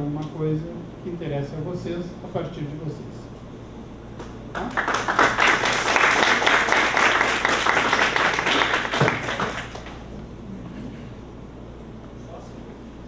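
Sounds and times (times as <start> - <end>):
audience applauding: 4.5 - 10.1.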